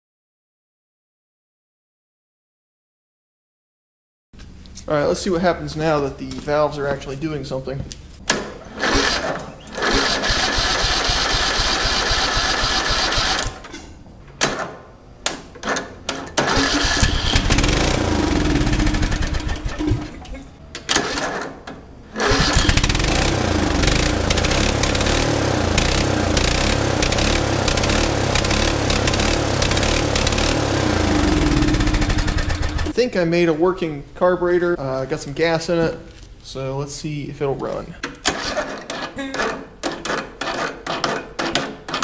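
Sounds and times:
mower starter cranking: 0:08.3 - 0:13.7, 0:15.6 - 0:33.0, 0:38.2 - 0:41.0
riding mower engine running: 0:08.8 - 0:13.6, 0:16.4 - 0:20.3, 0:22.2 - 0:33.0.

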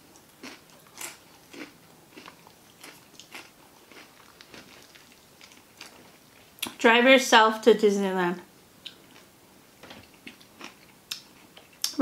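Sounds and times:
person chewing crunchy food: 0:00.0 - 0:06.6, 0:08.8 - 0:09.3, 0:10.0 - 0:12.0.

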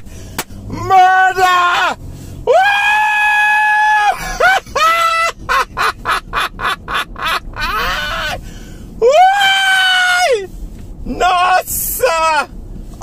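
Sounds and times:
man laughing hard: 0:03.6 - 0:08.4.

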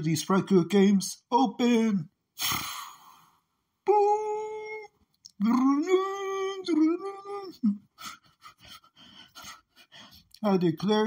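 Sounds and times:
short vocal sounds: 0:02.4 - 0:07.8.

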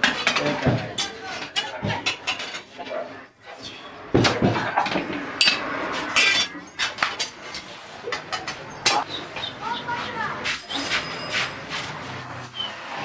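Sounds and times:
metal utensils and dishes clinking: 0:00.0 - 0:09.1, 0:10.4 - 0:13.0.

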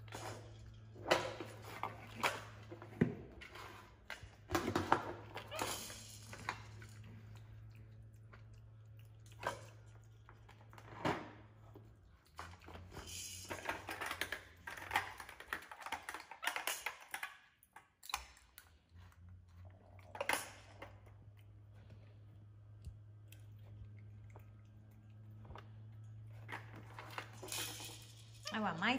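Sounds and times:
plastic toys clattering: 0:00.0 - 0:07.6, 0:09.4 - 0:18.6, 0:20.0 - 0:21.2, 0:25.9 - 0:28.9.

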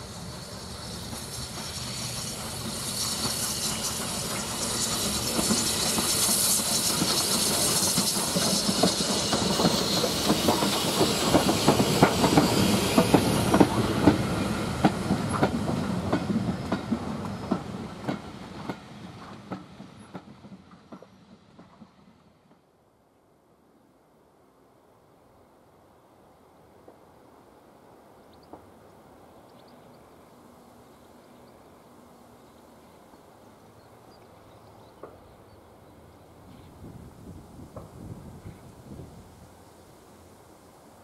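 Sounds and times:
locomotive steam hiss: 0:00.0 - 0:22.4
train wheels clattering over rail joints: 0:00.4 - 0:22.6.

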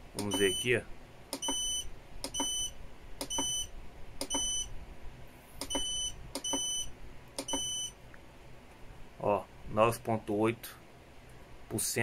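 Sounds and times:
short high beeps: 0:00.3 - 0:00.7, 0:04.3 - 0:04.7, 0:05.6 - 0:07.9.

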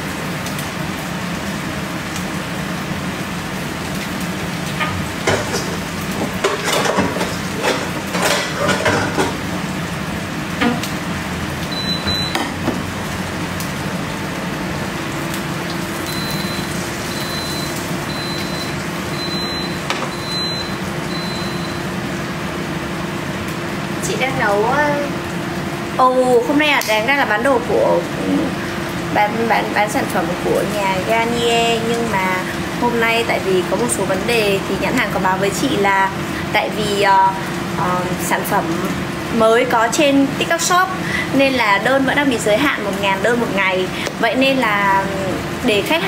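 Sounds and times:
dishes and utensils clattering: 0:04.8 - 0:09.4
short high beeps: 0:16.1 - 0:21.8.

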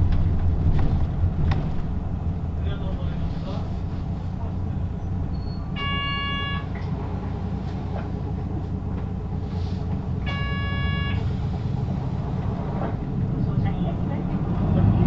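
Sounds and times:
bus engine rumbling: 0:00.0 - 0:15.0
long beeps: 0:05.4 - 0:06.7, 0:10.3 - 0:11.3.

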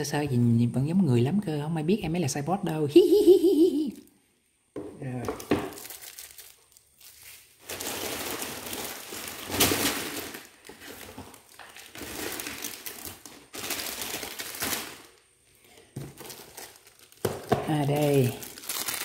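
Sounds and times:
plastic bags crinkling: 0:05.4 - 0:19.0.

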